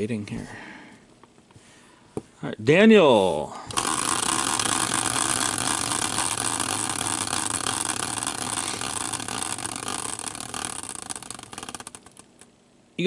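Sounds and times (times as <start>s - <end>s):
spinning wheel whirring rattle: 3.7s - 12.5s.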